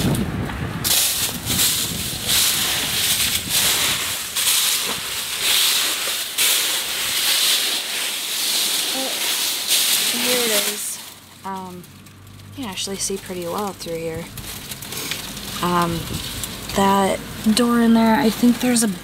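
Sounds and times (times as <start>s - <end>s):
footsteps through dry leaves: 0.8s - 19.0s.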